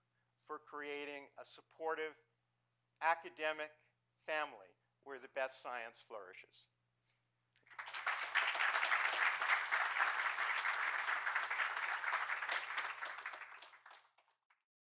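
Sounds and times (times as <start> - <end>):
audience applauding: 7.6 - 14.6.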